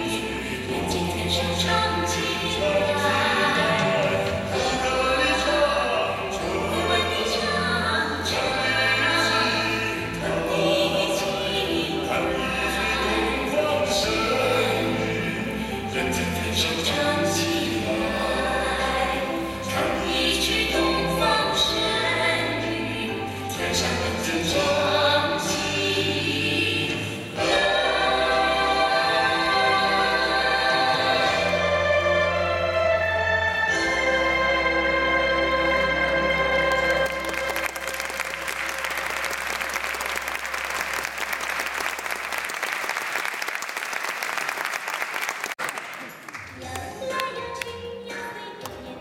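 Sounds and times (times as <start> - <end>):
music with choir singing: 0.0 - 44.2
audience applauding: 36.6 - 46.6.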